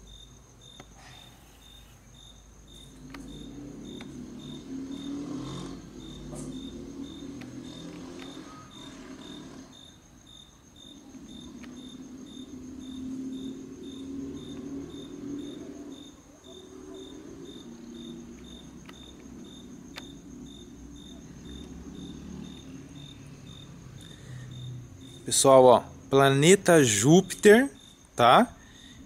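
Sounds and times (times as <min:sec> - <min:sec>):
crickets chirping: 0:00.0 - 0:29.0.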